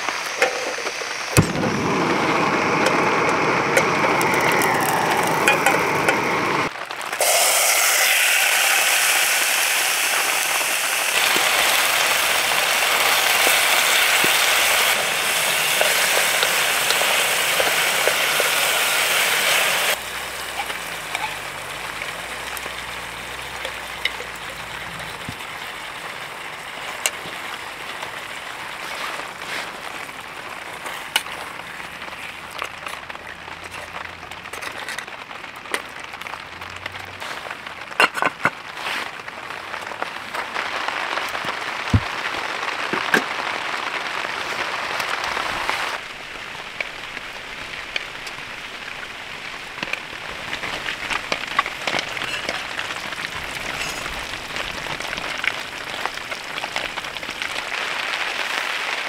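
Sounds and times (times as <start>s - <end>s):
rain pattering on tent fabric: 0.0s - 59.0s.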